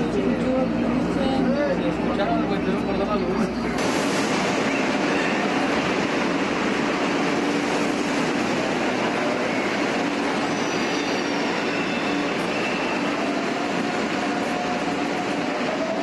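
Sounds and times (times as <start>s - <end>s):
train rolling with low hum: 0.0s - 16.0s
faint high wheel squeal: 9.2s - 13.5s.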